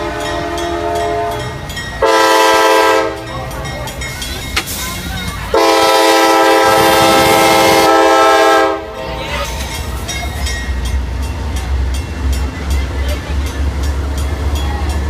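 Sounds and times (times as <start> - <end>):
locomotive air horn blast: 0.0 - 3.2, 5.5 - 9.2
locomotive and wheels rumbling on rails: 0.0 - 15.0.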